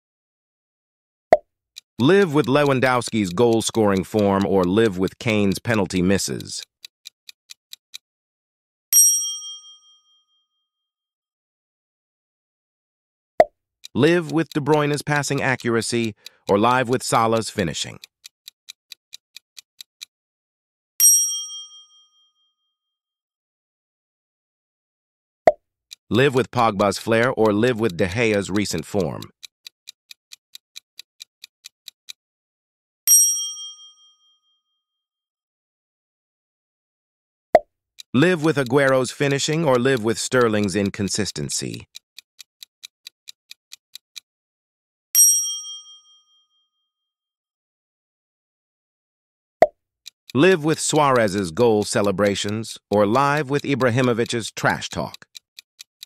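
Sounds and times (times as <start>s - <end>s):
clock-like timer ticks: 1.8s - 8.0s, 13.8s - 20.1s, 25.9s - 32.2s, 38.0s - 44.3s, 50.0s - 56.0s
bright bell ding: 9.0s - 10.0s, 21.0s - 22.0s, 33.1s - 34.1s, 45.2s - 46.3s
bright ding: 9.0s - 10.0s, 45.2s - 46.2s.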